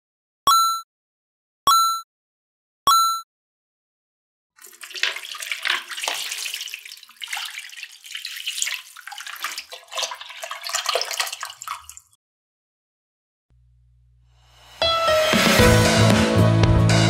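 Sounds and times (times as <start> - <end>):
water pouring and splashing: 4.6 - 12.2.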